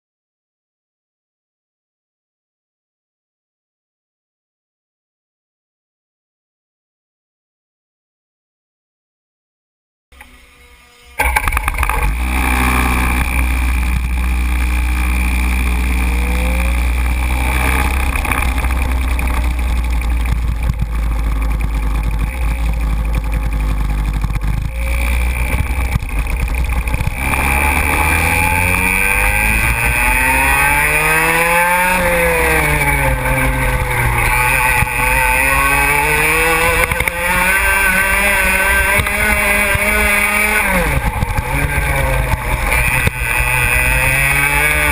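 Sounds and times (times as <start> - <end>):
kart engine revving: 10.2 - 44.9.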